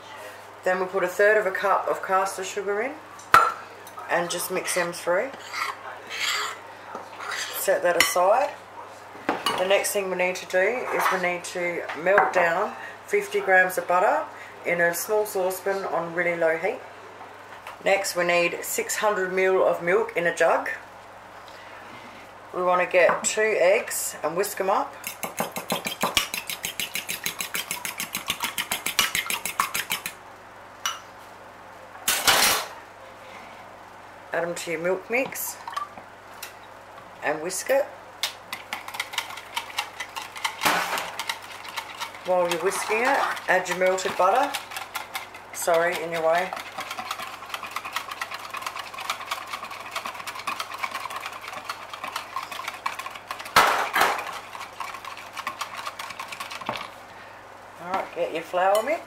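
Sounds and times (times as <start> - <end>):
fork beating eggs in a bowl: 25.0 - 30.2, 38.2 - 57.0
whisk ticking against plastic jug: 25.2 - 30.1, 38.5 - 53.6, 54.4 - 56.9.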